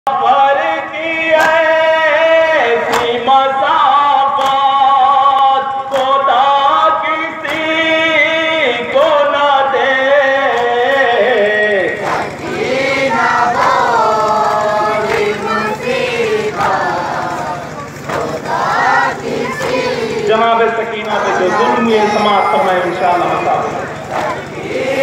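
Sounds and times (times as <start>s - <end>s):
men chanting: 0.1s - 25.0s.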